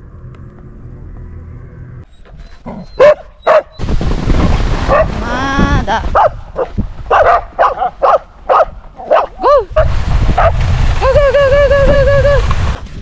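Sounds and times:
low rumbling noise: 0.0 - 2.1
dog yipping and whining: 2.1 - 3.8.

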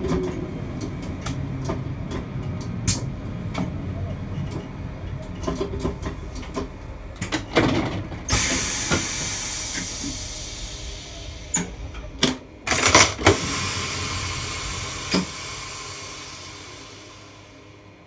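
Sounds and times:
train releasing compressed air: 8.3 - 18.0.

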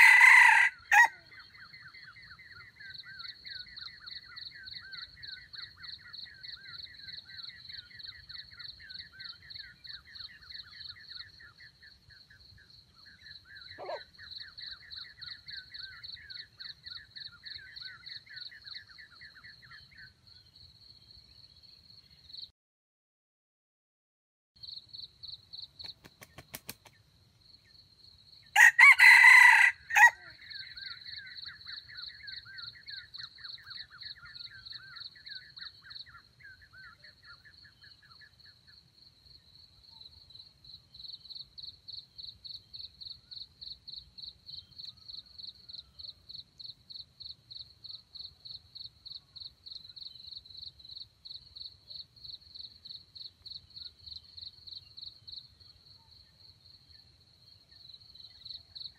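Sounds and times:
rooster crowing: 0.0 - 1.3, 28.6 - 30.4.

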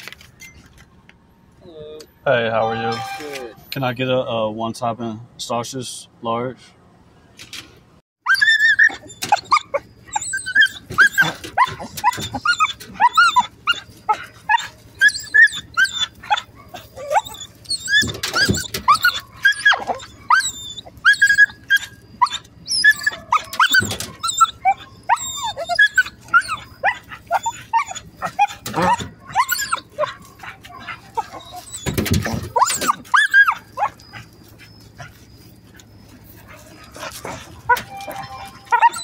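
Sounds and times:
dog whining and yipping: 8.2 - 39.0
dog barking: 16.2 - 17.3, 28.2 - 31.6.

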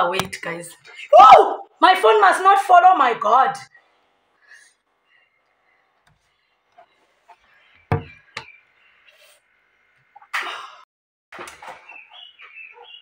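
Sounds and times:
phone knocking on surface: 7.9 - 8.2.

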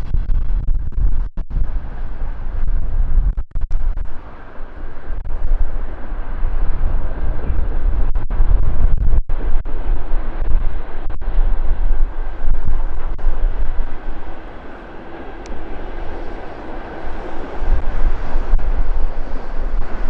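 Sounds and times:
train wheels rumbling on rail: 11.1 - 20.0.

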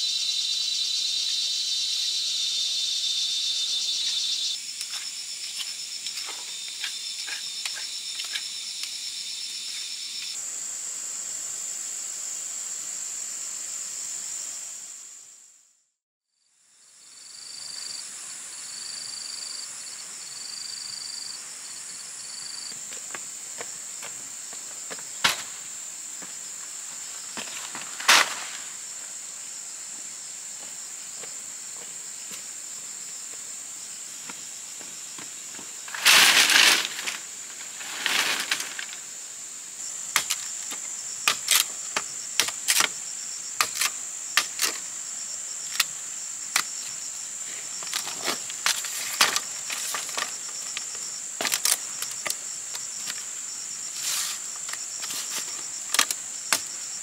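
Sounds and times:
insects droning: 0.0 - 15.8, 16.4 - 57.0
machete striking bamboo: 25.2 - 25.6, 28.0 - 28.6, 41.2 - 43.0, 43.6 - 44.8.

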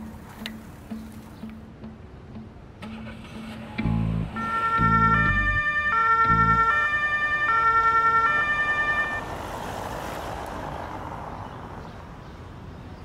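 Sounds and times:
two-tone police siren: 4.1 - 9.3.

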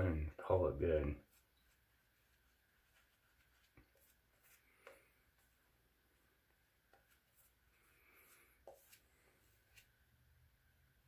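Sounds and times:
shaving brush scratching: 1.2 - 5.0, 6.9 - 10.0.

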